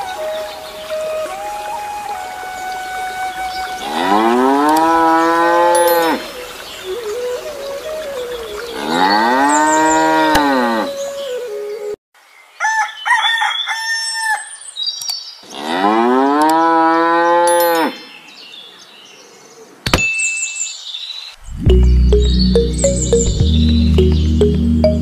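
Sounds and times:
cow mooing: 3.9 - 6.2, 8.8 - 10.9.

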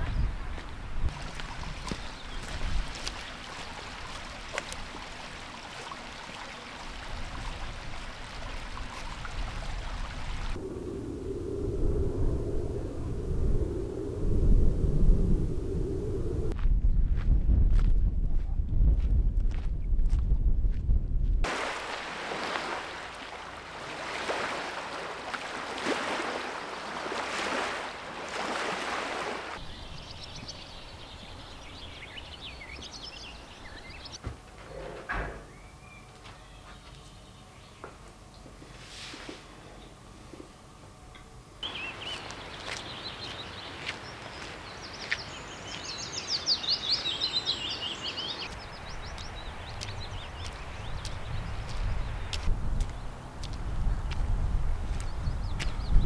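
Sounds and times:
small birds chirping: 0.0 - 6.8, 29.6 - 34.2, 41.6 - 54.3, 54.9 - 56.0
running water: 1.1 - 10.6, 21.5 - 29.6.

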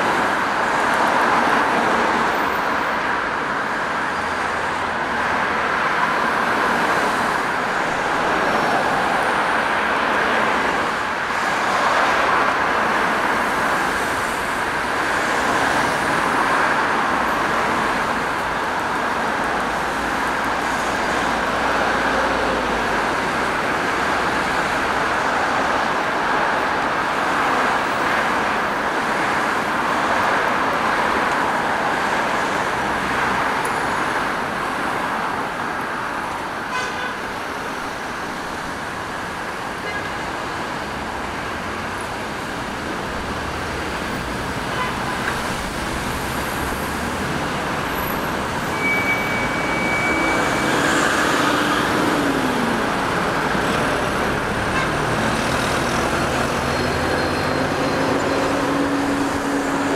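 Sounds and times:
cars passing: 0.0 - 59.9.

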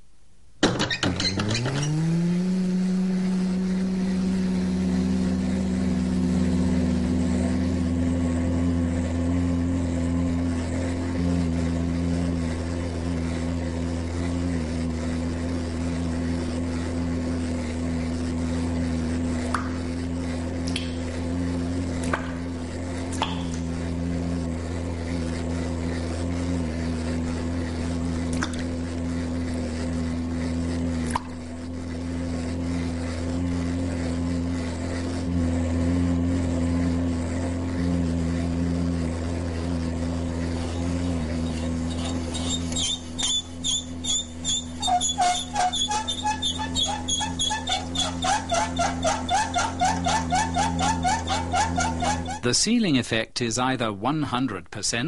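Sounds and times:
low hum with held tones: 0.0 - 55.0
deep drone: 1.1 - 52.8.

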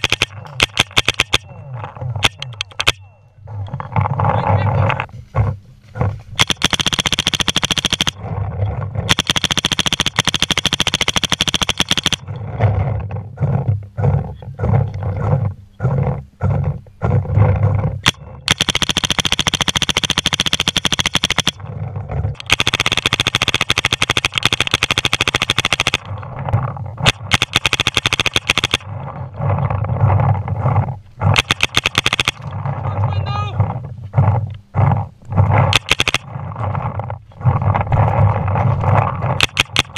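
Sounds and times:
paintball marker firing rapidly: 0.0 - 3.0, 6.4 - 8.3, 9.0 - 12.3, 18.0 - 21.6, 22.4 - 26.2, 27.0 - 29.6, 31.2 - 32.6, 35.4 - 36.8, 39.2 - 39.9
rough low noise: 0.0 - 11.1, 11.7 - 20.0, 21.1 - 39.9.

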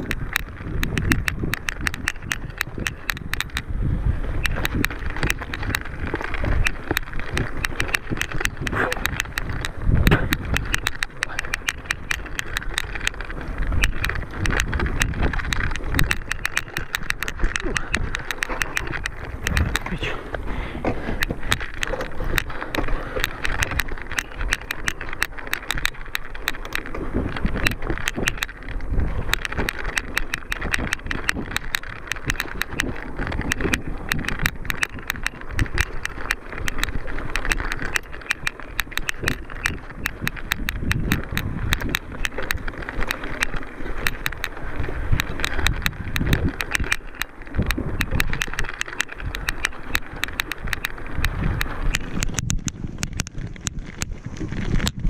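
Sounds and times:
bike rattling and clicking: 0.0 - 55.0
tyre noise: 0.0 - 55.0
wind on microphone: 0.0 - 55.0.

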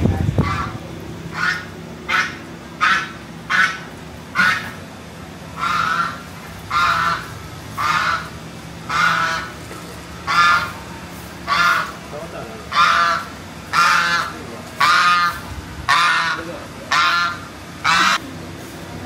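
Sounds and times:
goose honking: 0.4 - 4.9, 5.5 - 9.6, 10.2 - 12.0, 12.6 - 18.2.

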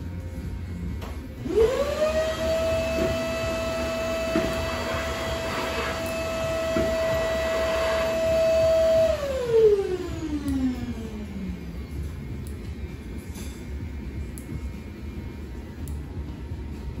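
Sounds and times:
electric motor humming: 1.4 - 11.9.

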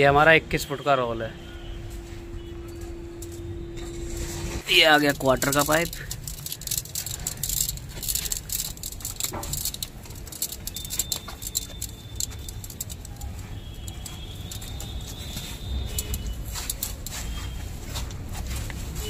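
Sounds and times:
copper pipe rattling on concrete: 4.6 - 17.4.

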